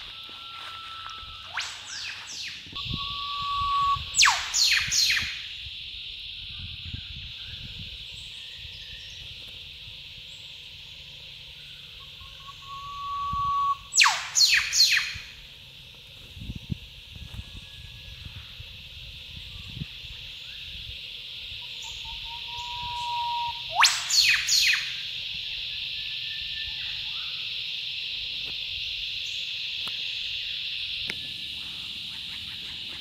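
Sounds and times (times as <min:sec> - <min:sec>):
insects buzzing: 0:00.0 - 0:33.0
bird whistle and whip-crack call: 0:00.4 - 0:05.5, 0:12.2 - 0:15.4, 0:21.8 - 0:25.1.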